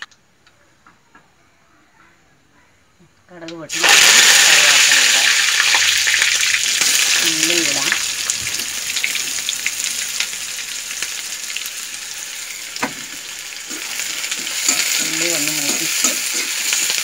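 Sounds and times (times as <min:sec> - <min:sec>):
oil sizzling and crackling: 0:03.7 - 0:17.0.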